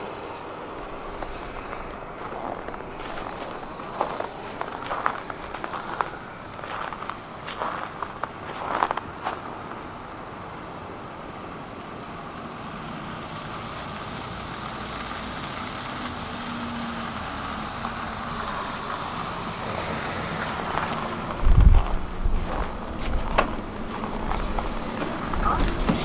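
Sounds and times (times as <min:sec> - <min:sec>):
bus engine and tyre noise: 0:00.0 - 0:26.0.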